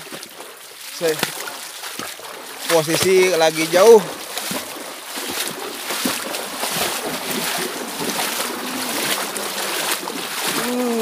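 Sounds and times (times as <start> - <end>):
water sloshing around wading legs: 0.0 - 11.0.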